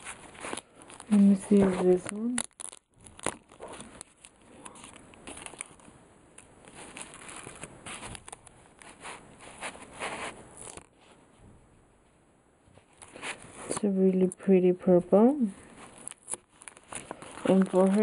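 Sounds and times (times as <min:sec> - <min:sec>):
plastic bags crinkling: 0:00.0 - 0:11.0, 0:15.6 - 0:18.0.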